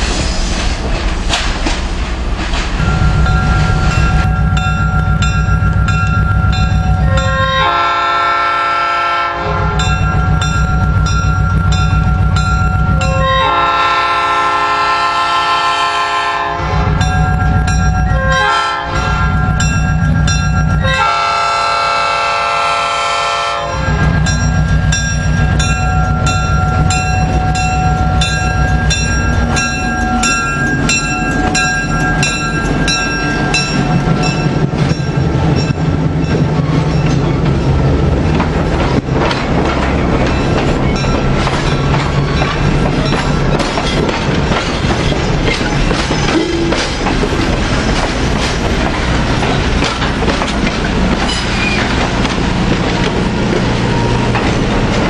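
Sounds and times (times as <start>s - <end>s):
locomotive engine rumble: 0.0s - 55.0s
rhythmic rail clatter: 0.0s - 55.0s
locomotive air horn blasts: 7.0s - 9.9s, 13.0s - 16.8s, 18.2s - 19.4s, 20.8s - 24.1s.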